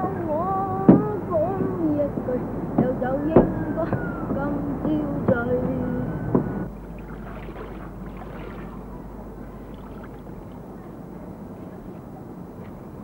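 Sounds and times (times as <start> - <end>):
water sloshing in a bucket: 6.8 - 10.8.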